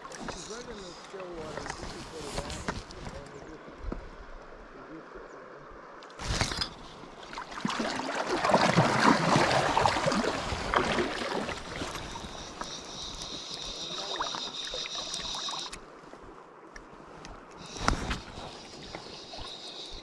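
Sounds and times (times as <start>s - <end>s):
water splashing and gurgling: 6.1s - 20.0s.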